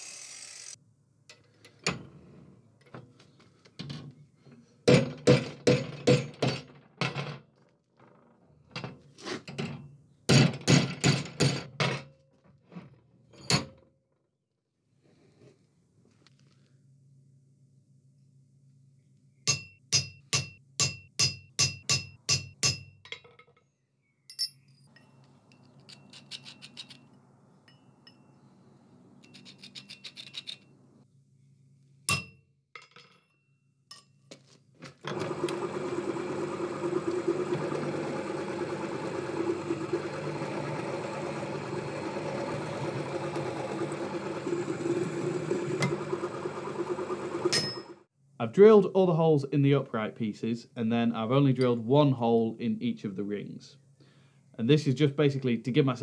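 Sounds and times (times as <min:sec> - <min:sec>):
light metal clinks and scrapes: 0:24.3 - 0:28.4, 0:29.2 - 0:30.7
pillar drill drilling steel: 0:35.1 - 0:48.0.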